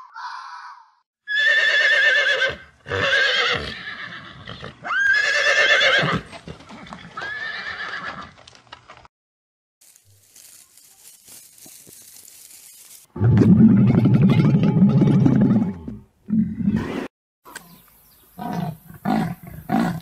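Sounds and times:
horse whinnying: 1.3s - 8.4s.

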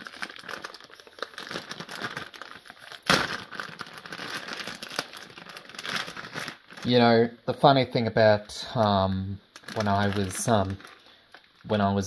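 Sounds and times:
plastic packet crinkling: 0.0s - 7.2s, 9.5s - 12.0s.

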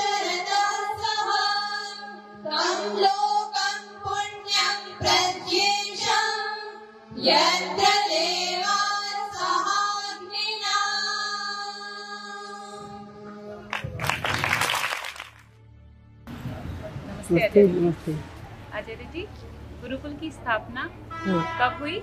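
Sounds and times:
girls singing together: 0.0s - 13.0s
people clapping: 13.6s - 15.6s.

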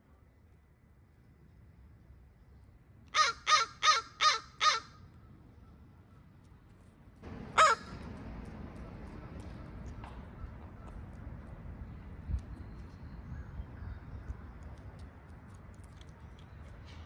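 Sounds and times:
crow cawing: 3.1s - 5.1s, 7.6s - 8.0s.

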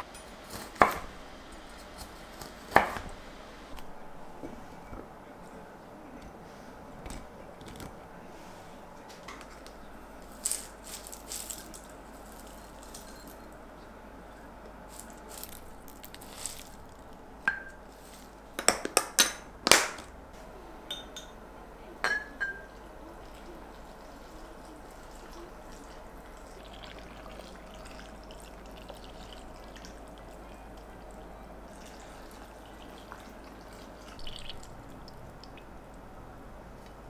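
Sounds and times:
dishes and utensils clinking: 10.3s - 13.6s, 17.5s - 19.5s, 20.9s - 21.4s, 22.0s - 22.8s.

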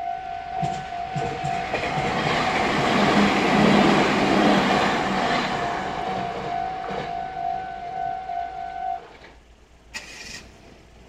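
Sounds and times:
electric train passing: 0.0s - 11.0s
train wheel clacks: 0.5s - 7.4s.

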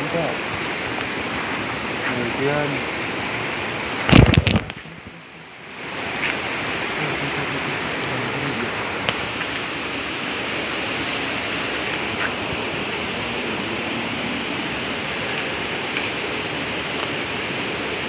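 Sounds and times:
river water rushing: 0.0s - 18.0s
thin high tone: 6.9s - 18.0s.

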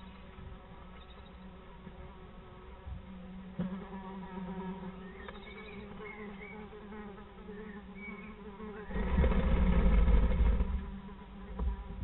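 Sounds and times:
steady buzzing hum: 0.0s - 12.0s
faint high chirps: 5.0s - 6.7s
loud rustling rumble: 8.9s - 12.0s.

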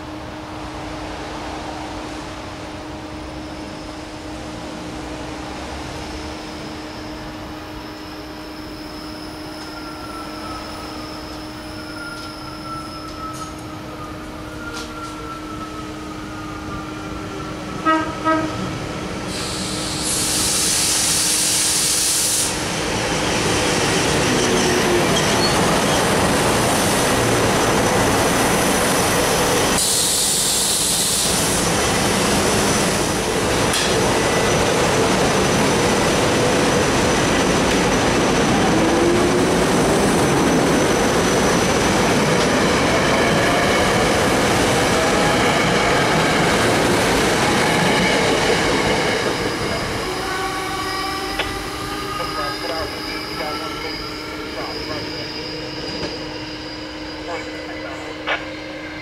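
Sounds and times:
train wheels rushing on rails: 0.0s - 59.0s
train horn blasts: 17.8s - 18.7s.

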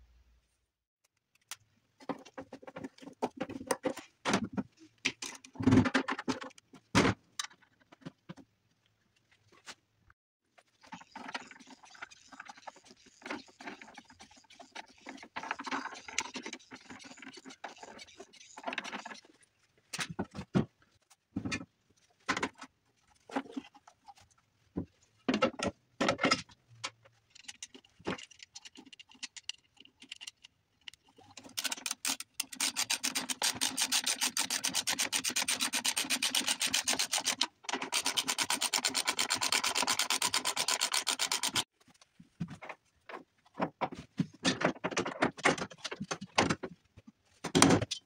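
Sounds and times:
fast rasping rattle: 31.4s - 41.6s.

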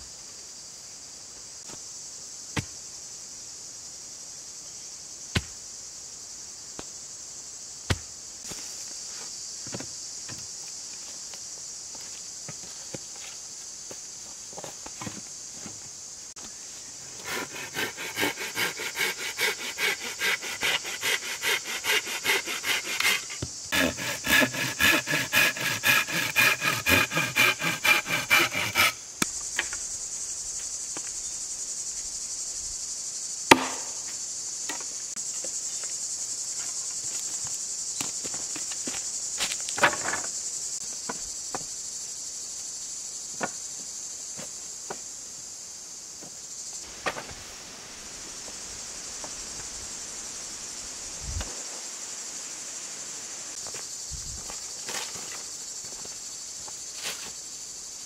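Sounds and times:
insects droning: 0.0s - 58.0s
hand saw cutting wood: 17.1s - 29.0s.

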